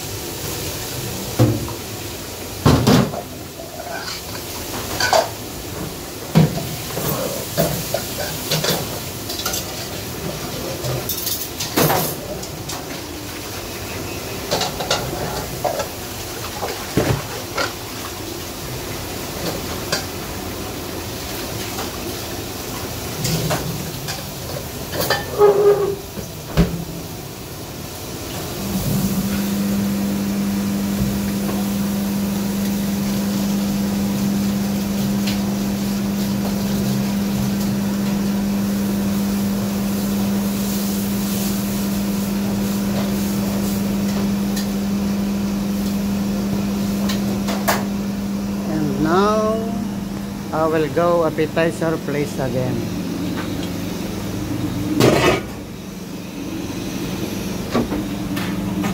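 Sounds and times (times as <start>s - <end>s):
pots and utensils clattering: 2.6s - 13.2s, 13.9s - 17.8s, 23.1s - 26.7s
electric machine hum: 26.9s - 58.9s.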